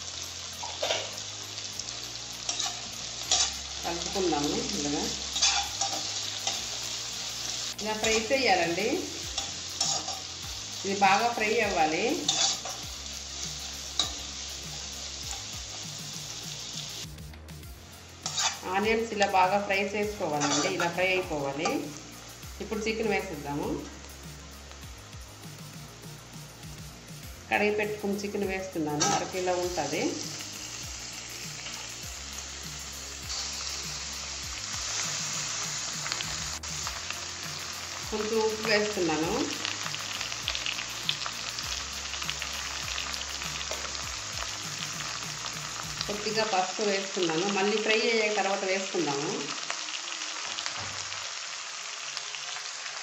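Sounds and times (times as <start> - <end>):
background music: 0.0 - 51.2
onions sizzling in hot oil: 0.0 - 53.0
spatula stirring: 5.4 - 6.7, 18.2 - 18.6.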